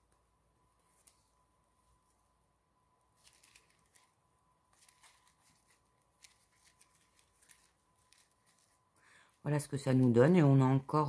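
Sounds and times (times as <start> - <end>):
paper pages rustling and clicking: 0.8 - 1.4, 3.1 - 8.8.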